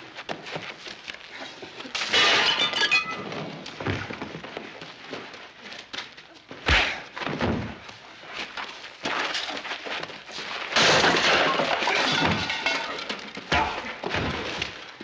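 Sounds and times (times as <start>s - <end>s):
loud crash of something breaking: 2.0s - 3.4s, 10.7s - 14.8s
punches and thuds: 6.6s - 7.8s, 13.5s - 14.8s.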